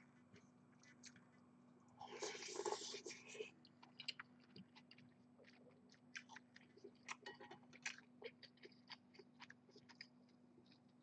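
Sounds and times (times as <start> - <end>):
chewing with wet mouth clicks: 3.6 - 11.0.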